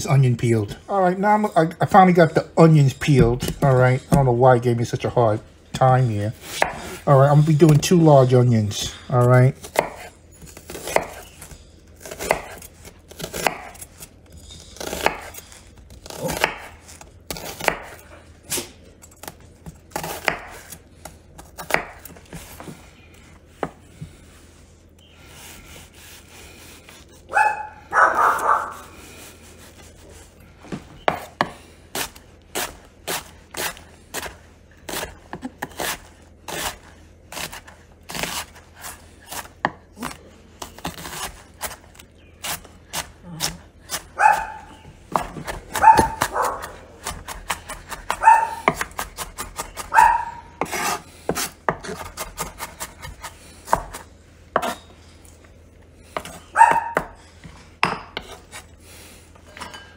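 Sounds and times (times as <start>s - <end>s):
knife chopping on wooden board: 6.4s - 7.0s, 9.7s - 11.3s, 12.0s - 13.8s, 14.8s - 15.4s, 16.0s - 18.0s, 19.2s - 22.7s, 31.0s - 40.2s, 40.8s - 54.0s, 57.8s - 58.6s.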